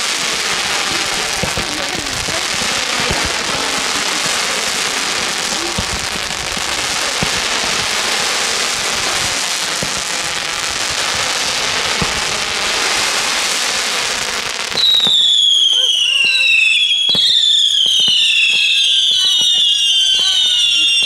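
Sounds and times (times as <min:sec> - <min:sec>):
fireworks crackling hiss: 0:00.0 - 0:21.0
fireworks low thumps: 0:00.0 - 0:21.0.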